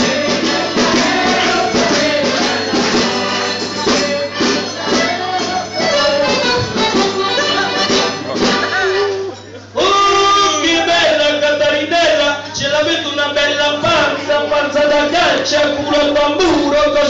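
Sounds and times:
tambourine jingling rhythm: 0.0s - 9.6s
folk melody: 0.0s - 10.2s.

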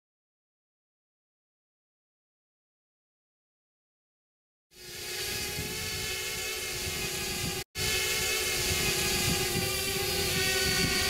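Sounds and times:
drone propellers whining: 4.7s - 11.0s
wind buffeting microphone: 5.1s - 11.0s.

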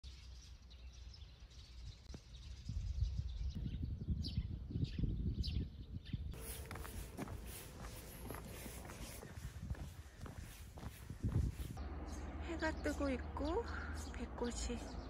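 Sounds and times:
small birds chirping: 0.0s - 15.0s
wind buffeting microphone: 2.4s - 12.2s.

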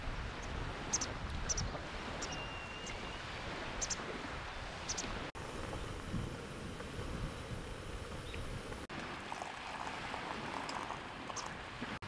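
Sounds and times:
outdoor wind rushing: 0.0s - 12.0s
small bird chirping: 0.9s - 3.2s, 3.8s - 4.0s.

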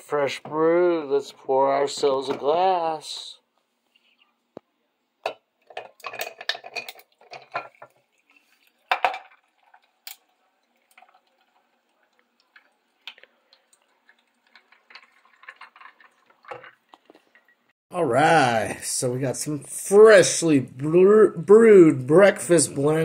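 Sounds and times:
glass carafe clinking: 5.3s - 7.9s
ice clicking and crackling: 5.8s - 17.6s
coffee poured over ice: 5.9s - 17.6s.

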